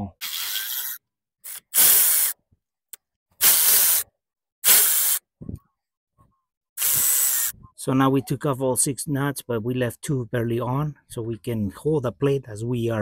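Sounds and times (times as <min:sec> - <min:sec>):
ratchet wrench ratcheting: 0:00.2 - 0:02.4, 0:06.8 - 0:07.5.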